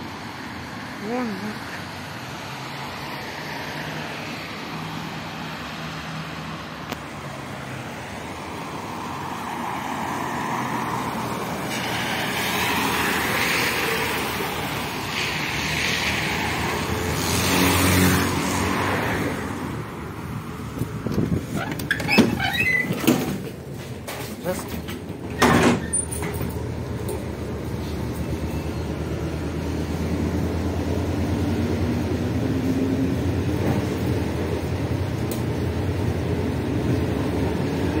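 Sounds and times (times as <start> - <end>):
background road traffic: 0.0 - 38.0
tyre hiss on wet road: 11.6 - 17.9
bus engine running: 19.5 - 38.0.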